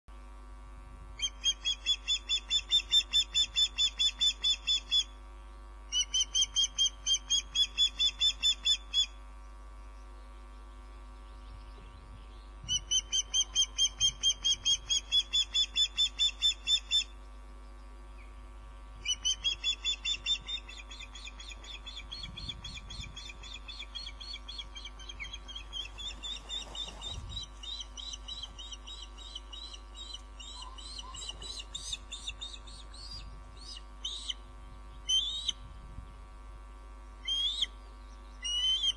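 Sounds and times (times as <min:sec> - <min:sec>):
steady low hum: 0:00.1 - 0:38.9
high whistled bird chirps: 0:19.0 - 0:34.4, 0:35.0 - 0:35.6, 0:37.2 - 0:37.8.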